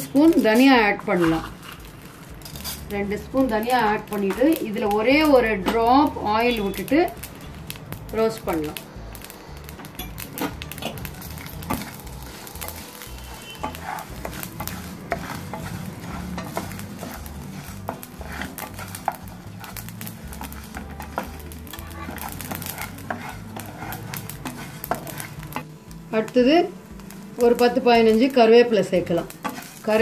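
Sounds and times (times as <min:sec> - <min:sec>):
wooden spatula scraping pan: 0:00.0 - 0:06.9, 0:10.1 - 0:25.7, 0:29.2 - 0:30.0
light sizzle of seeds: 0:00.0 - 0:30.0
seeds clicking: 0:06.4 - 0:26.4.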